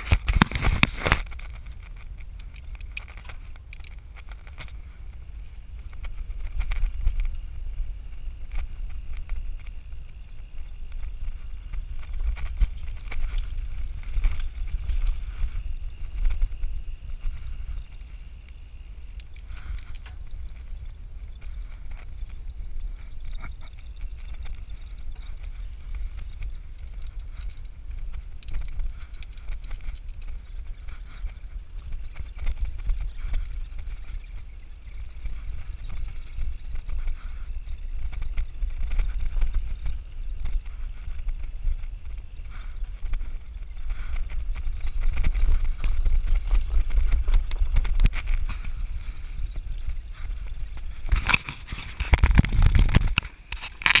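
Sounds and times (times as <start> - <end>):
camera handling rubbing and knocking: 0.0 - 4.8, 51.0 - 54.0
bike rolling over dirt road: 0.0 - 54.0
wind buffeting microphone: 0.0 - 54.0.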